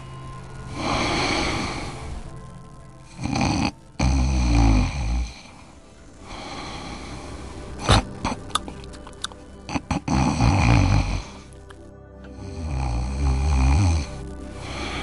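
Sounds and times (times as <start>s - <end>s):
person snoring: 0.6s - 2.3s, 3.1s - 8.9s, 9.6s - 11.6s, 12.3s - 15.0s
soft breathing: 5.3s - 10.0s
sharp clicks: 7.8s - 9.5s, 11.5s - 12.4s.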